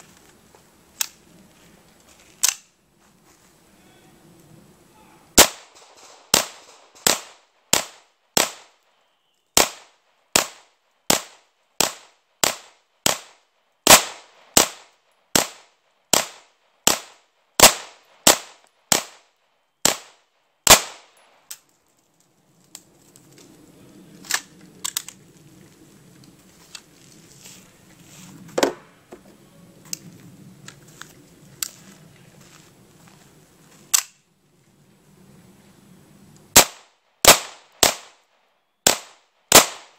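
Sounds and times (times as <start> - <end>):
pistol shots: 5.4 - 8.8, 9.6 - 21.2, 36.6 - 38.2, 38.8 - 39.9
low rustle: 21.6 - 36.5.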